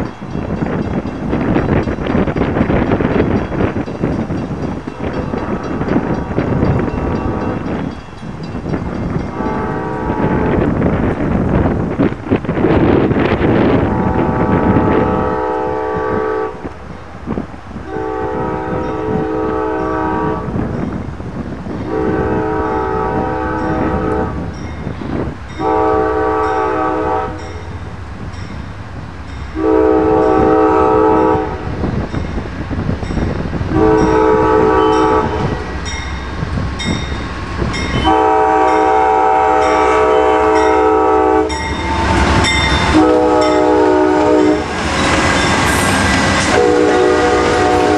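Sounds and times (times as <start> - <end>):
crossing bell dinging: 0.0 - 10.9, 23.5 - 30.8, 31.4 - 47.9
train rumble: 0.0 - 47.9
locomotive horn blasts: 7.0 - 7.6, 9.3 - 10.8, 13.6 - 16.7, 17.8 - 20.7, 21.8 - 24.4, 25.6 - 27.6, 29.6 - 31.9, 33.7 - 35.8, 37.7 - 47.9.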